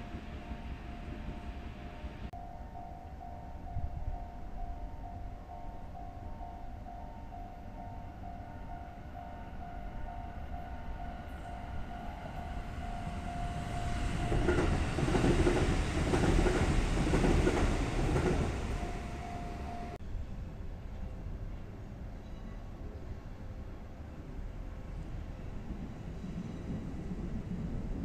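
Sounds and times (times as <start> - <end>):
diesel railcar passing: 0.0 - 28.0.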